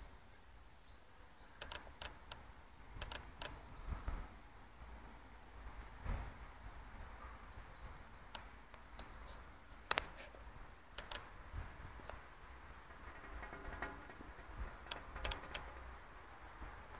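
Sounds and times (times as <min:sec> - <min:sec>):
bird chirping: 0:00.0 - 0:04.8, 0:05.8 - 0:09.3, 0:16.5 - 0:16.9
sharp clicks: 0:01.6 - 0:02.4, 0:03.0 - 0:03.6, 0:10.9 - 0:11.3, 0:12.9 - 0:15.9.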